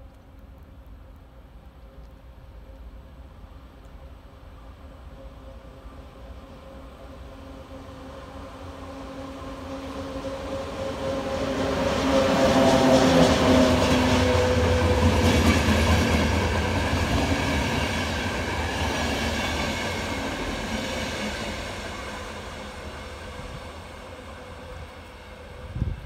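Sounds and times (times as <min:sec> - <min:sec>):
electric locomotive humming: 0:00.9 - 0:26.0
train wheels clattering on rails: 0:11.0 - 0:23.0.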